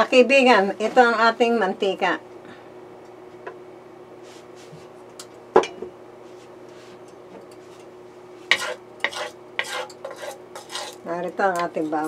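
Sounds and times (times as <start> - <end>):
steady low hum: 0.0 - 12.0
spatula scraping pan: 8.4 - 11.2.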